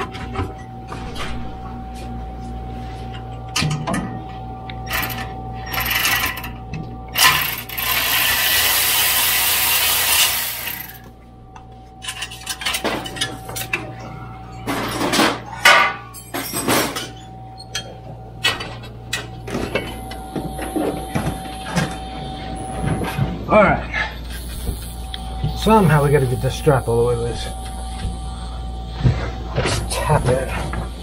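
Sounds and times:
metal tools clinking and scraping: 12.0s - 14.0s, 14.6s - 20.9s.

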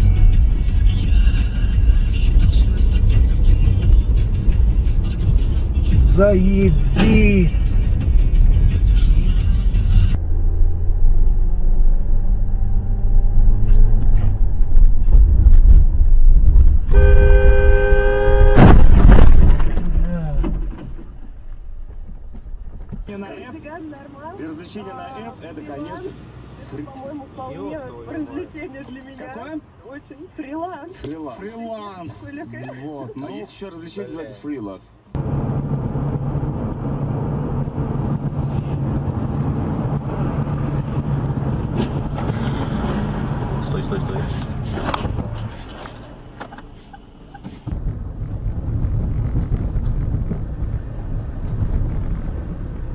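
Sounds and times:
car engine and road noise: 0.0s - 52.9s
vehicle horn blast: 16.9s - 18.8s.

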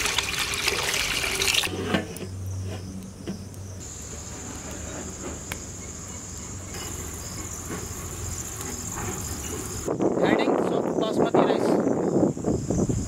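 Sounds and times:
insect high-pitched trill: 2.3s - 10.0s.

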